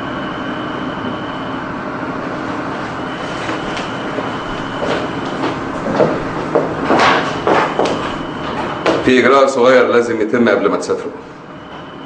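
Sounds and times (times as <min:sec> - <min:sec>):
steady rumbling: 0:02.1 - 0:10.1.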